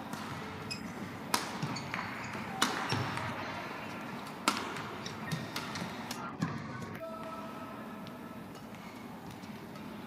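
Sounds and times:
rackets hitting shuttlecock: 0.0 - 7.4
shoes squeaking on court: 0.2 - 3.5.

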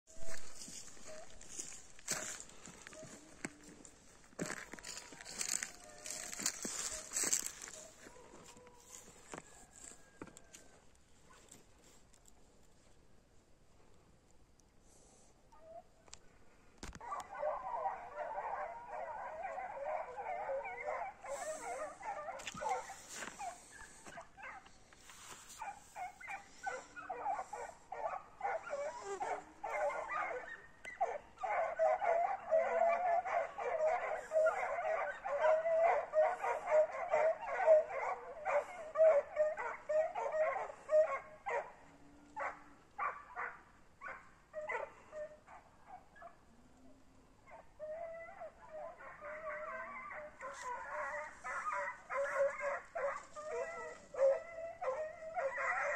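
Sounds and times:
canines yipping and whimpering: 17.0 - 24.7, 25.6 - 41.7, 47.5 - 55.9.

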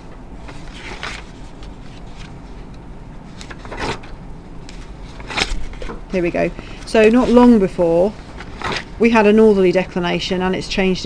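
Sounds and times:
paper pages turning: 0.4 - 9.0.

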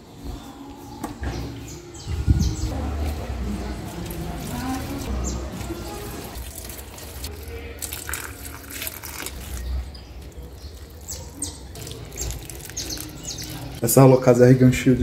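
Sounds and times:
water pouring onto soil: 4.0 - 13.8.

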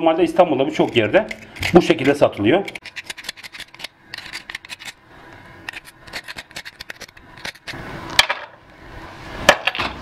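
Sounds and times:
knife scraping mussel shells: 0.7 - 5.0, 5.6 - 7.8.

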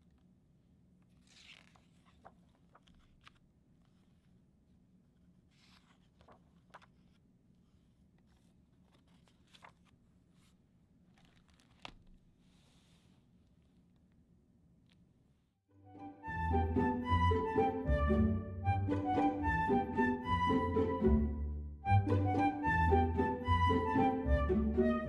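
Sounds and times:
book pages turning: 0.0 - 4.5, 5.2 - 14.2.

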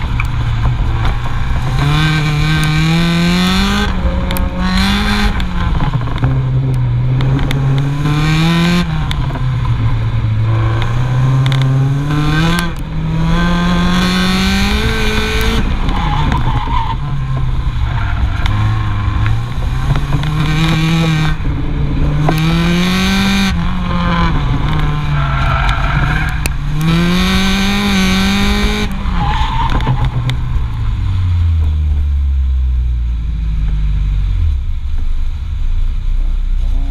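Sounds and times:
car engine revving: 0.0 - 35.4
tyre and road roar: 0.0 - 36.9.

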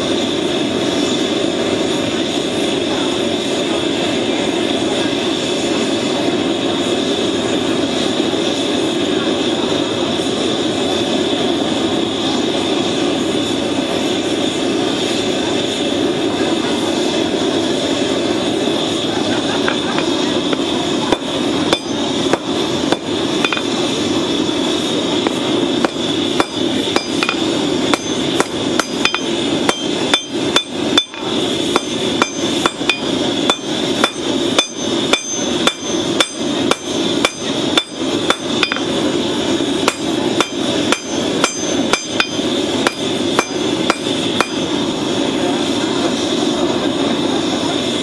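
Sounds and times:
hammer striking steel on anvil: 19.9 - 23.8, 25.2 - 38.9, 39.8 - 44.7.

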